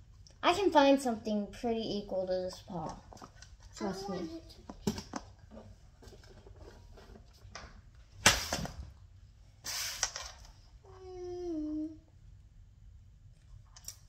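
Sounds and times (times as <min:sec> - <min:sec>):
child humming: 0:10.9 - 0:12.0.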